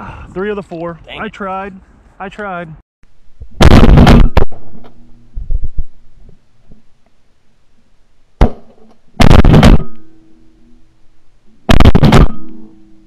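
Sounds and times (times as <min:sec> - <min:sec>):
shotgun shots: 0:03.6 - 0:04.9, 0:08.4 - 0:10.0, 0:11.7 - 0:12.6
ringing tone: 0:09.8 - 0:11.0.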